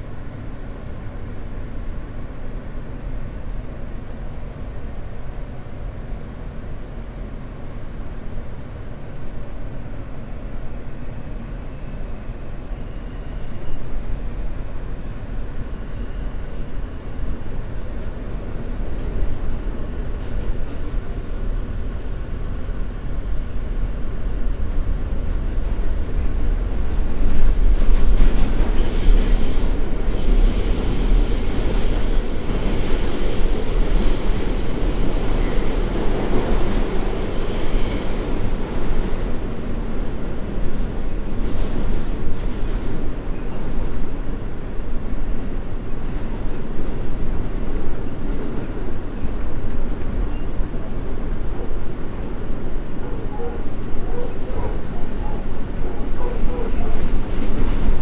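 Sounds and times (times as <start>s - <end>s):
subway train rumbling: 0.0s - 58.0s
steel wheels squealing: 28.7s - 36.2s, 36.9s - 39.4s.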